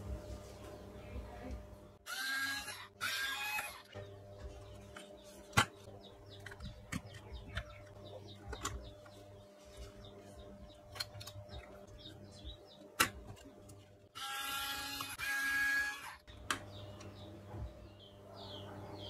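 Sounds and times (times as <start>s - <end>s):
steady low hum: 0.0s - 15.2s.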